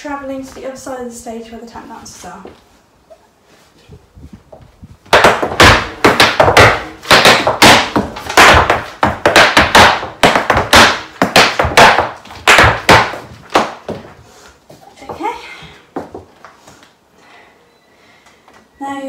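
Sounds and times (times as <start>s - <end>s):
hard shoes tapping on floor: 4.5s - 16.9s.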